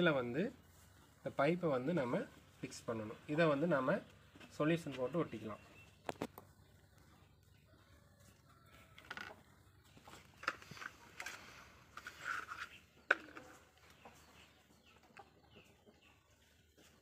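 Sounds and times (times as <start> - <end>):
faint bird chirps: 3.1 - 16.8
small objects rustling and scraping: 8.2 - 14.5.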